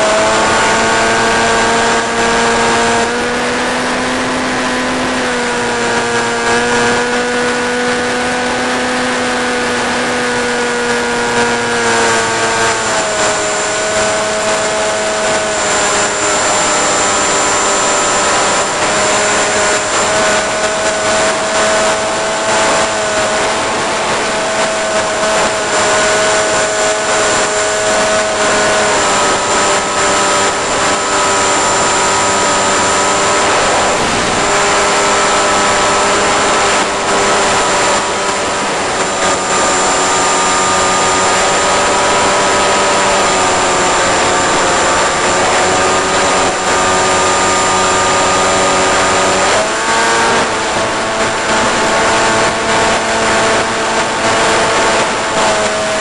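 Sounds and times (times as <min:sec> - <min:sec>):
electric motor whine: 0:00.0 - 0:56.0
rushing air noise: 0:19.1 - 0:48.9.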